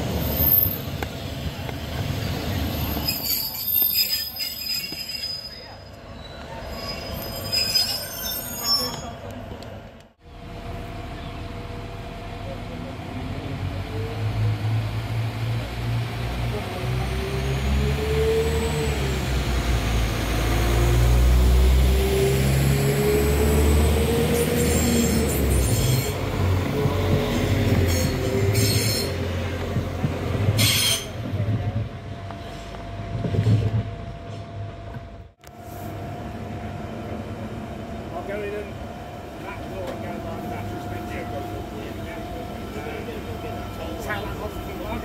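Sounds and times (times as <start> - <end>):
train rumbling past: 4.6 - 45.0.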